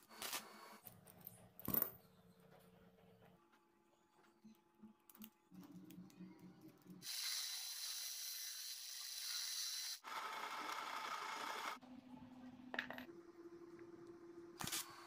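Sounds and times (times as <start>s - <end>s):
drill bit cutting steel: 7.0s - 11.8s.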